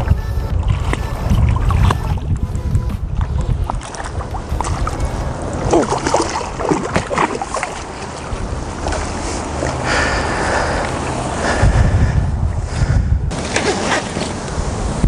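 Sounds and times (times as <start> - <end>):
wind rumbling on microphone: 0.0 - 15.0
fish thrashing splashing water: 3.1 - 11.3, 13.4 - 14.4.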